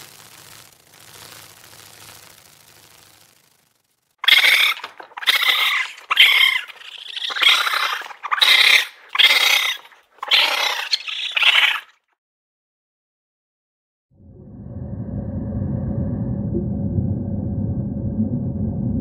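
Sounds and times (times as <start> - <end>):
raccoon dog calling: 4.2 - 11.9.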